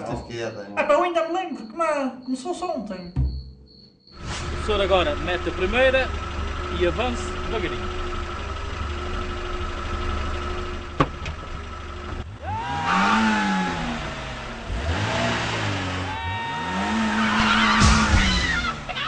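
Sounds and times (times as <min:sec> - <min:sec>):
rushing hiss of car taking off: 0:04.2 - 0:05.6
car engine idling and revving: 0:04.2 - 0:19.0.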